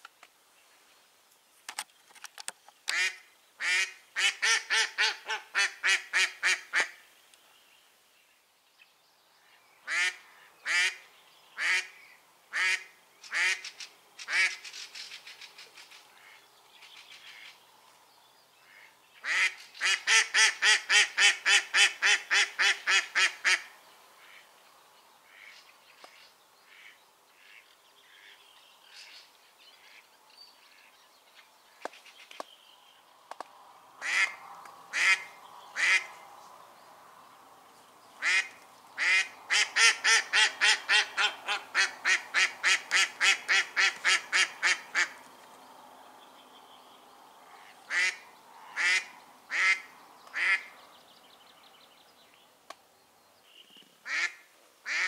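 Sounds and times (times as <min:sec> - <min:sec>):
duck quacking: 0:02.9 - 0:06.9, 0:11.6 - 0:13.6, 0:18.7 - 0:24.4, 0:26.7 - 0:27.6, 0:34.0 - 0:36.1, 0:38.2 - 0:45.2, 0:47.6 - 0:50.7.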